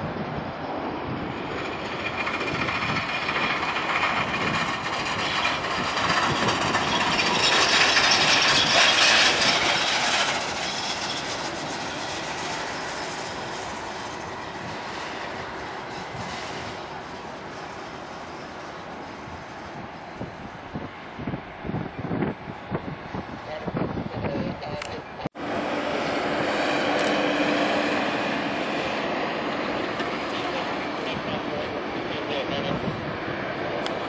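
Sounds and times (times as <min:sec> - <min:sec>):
jet engines rumbling and whining: 0:00.0 - 0:34.0.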